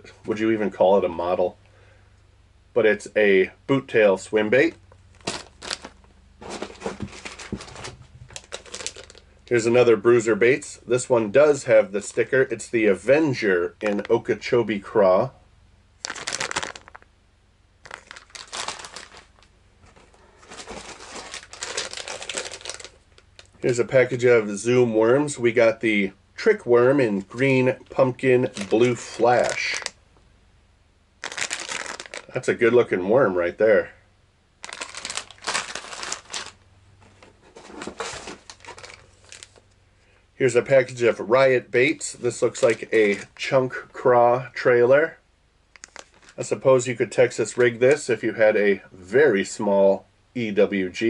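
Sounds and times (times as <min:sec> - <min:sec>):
plastic packages crinkling: 0:05.1 - 0:09.7, 0:16.0 - 0:17.1, 0:17.8 - 0:23.8, 0:27.1 - 0:30.0, 0:31.2 - 0:32.4, 0:34.6 - 0:39.7, 0:42.2 - 0:43.5, 0:45.8 - 0:46.6.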